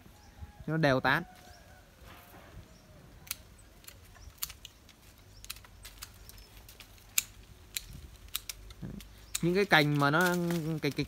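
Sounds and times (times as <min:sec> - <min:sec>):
pruning shears snipping branches: 0:03.1 - 0:11.0.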